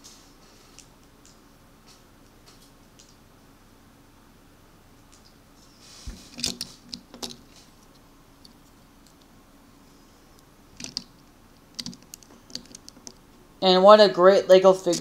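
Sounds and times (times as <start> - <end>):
plastic toy pieces clicking: 10.8 - 11.1.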